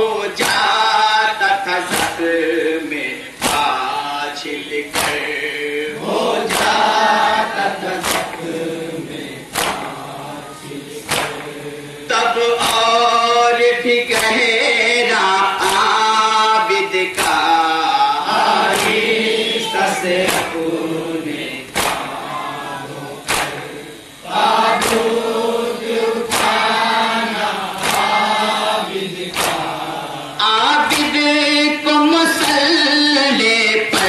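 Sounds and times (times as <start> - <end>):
men chanting in unison: 0.0 - 34.0
hands striking chests: 8.0 - 8.4, 9.5 - 10.0, 11.1 - 11.6, 21.7 - 22.2, 23.3 - 23.7.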